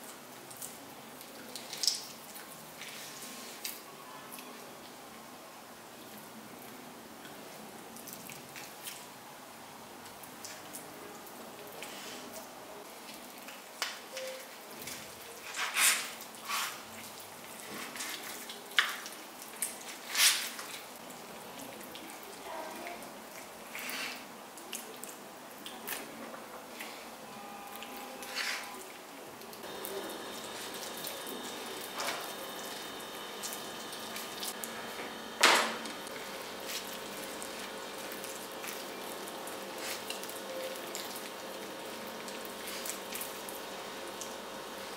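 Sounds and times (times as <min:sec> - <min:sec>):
wet squelches: 0:27.7 - 0:34.7, 0:35.9 - 0:44.8.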